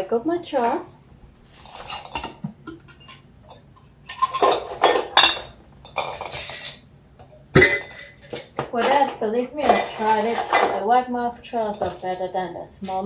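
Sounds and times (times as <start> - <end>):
glass jars clinking: 1.9 - 6.8, 7.6 - 10.8.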